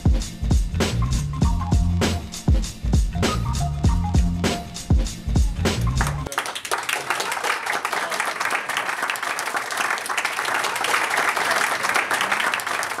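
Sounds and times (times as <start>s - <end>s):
background music: 0.0s - 6.3s
audience applauding: 5.8s - 13.0s.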